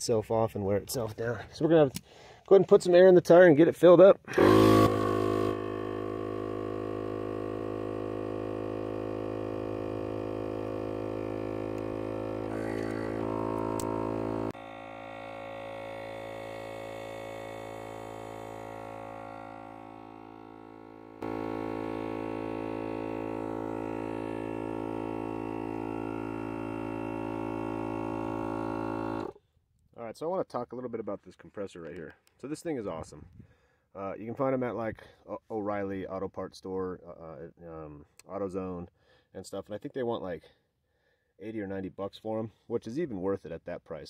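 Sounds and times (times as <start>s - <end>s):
air compressor buzzing drone: 4.3s - 29.4s.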